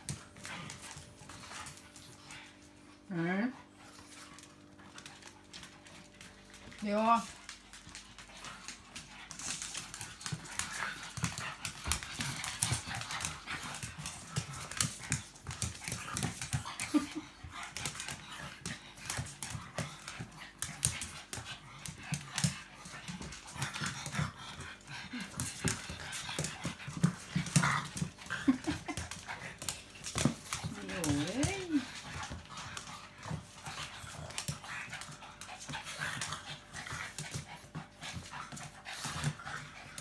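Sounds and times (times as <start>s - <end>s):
dogs panting: 0.0s - 40.0s
dogs growling and grunting: 9.7s - 40.0s
scuffle of paws and bodies: 17.7s - 40.0s.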